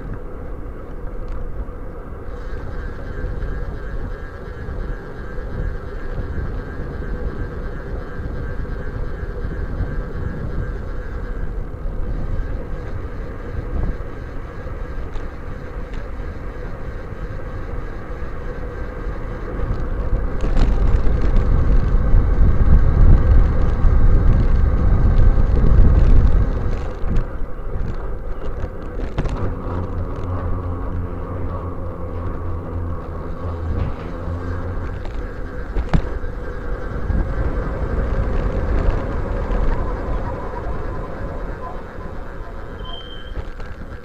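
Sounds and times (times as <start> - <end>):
wind buffeting: 0.0 - 44.0
tyre rumble on asphalt: 19.7 - 41.5.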